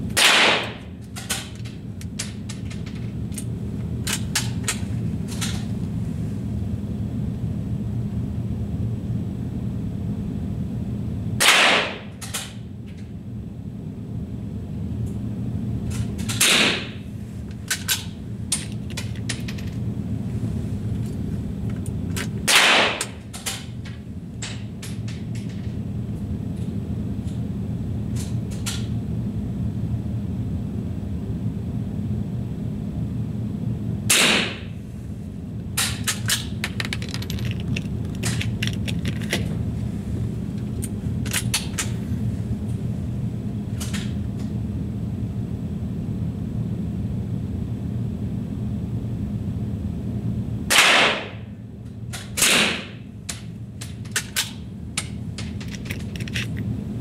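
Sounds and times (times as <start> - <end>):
steady low hum: 0.0 - 57.0
rifle shots with echo: 0.2 - 0.7.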